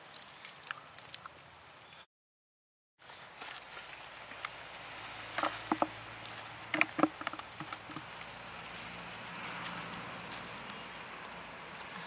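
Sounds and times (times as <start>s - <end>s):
hands rustling in plants and soil: 3.0s - 12.0s.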